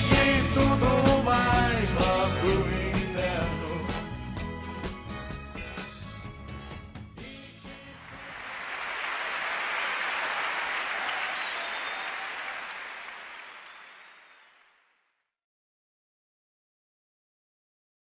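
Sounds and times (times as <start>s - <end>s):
audience applauding: 7.9s - 14.8s.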